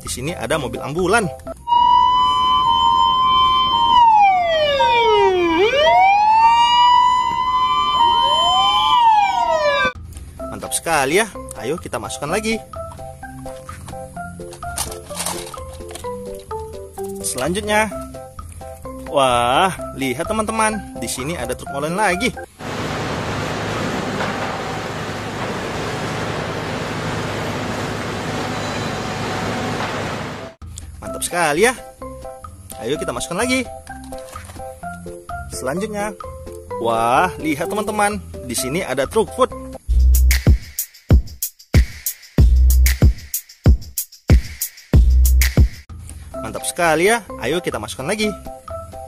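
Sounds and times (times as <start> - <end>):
two-note siren beeps: 1.6 - 10.0
wailing electronic siren: 1.6 - 10.0
diesel engine rumbling: 22.5 - 30.6.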